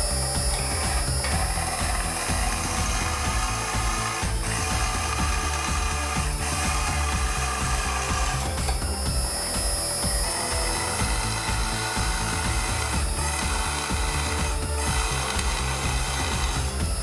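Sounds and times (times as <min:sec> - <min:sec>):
high whine: 0:00.0 - 0:17.0
milling machine drilling metal: 0:00.0 - 0:17.0.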